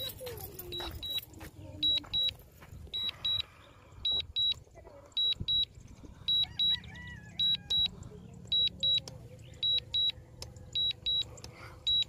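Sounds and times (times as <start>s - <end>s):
high double warning beeps: 0.0s - 12.0s.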